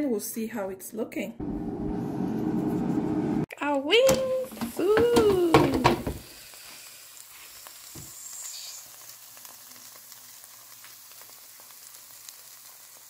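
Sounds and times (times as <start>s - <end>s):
chicken wings sizzling: 4.3s - 13.0s.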